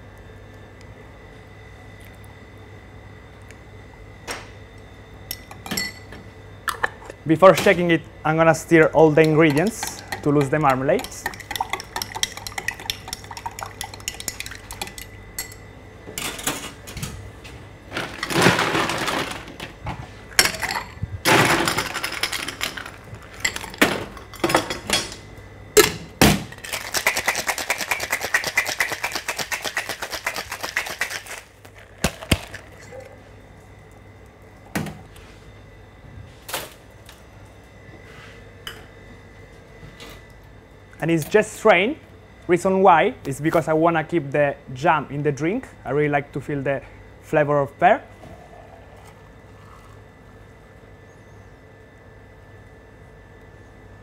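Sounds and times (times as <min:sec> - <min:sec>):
bar spoon clinking: 0:09.1 - 0:15.6
cocktail shaker rattling: 0:09.2 - 0:15.1, 0:26.6 - 0:32.7.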